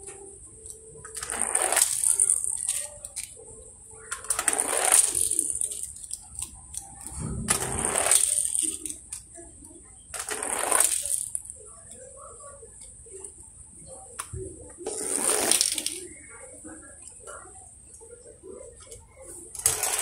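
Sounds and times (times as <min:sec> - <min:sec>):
toy cars rolling on wood and concrete: 0:00.7 - 0:03.4, 0:04.1 - 0:09.3, 0:10.1 - 0:11.6, 0:14.2 - 0:16.2, 0:19.5 - 0:20.0.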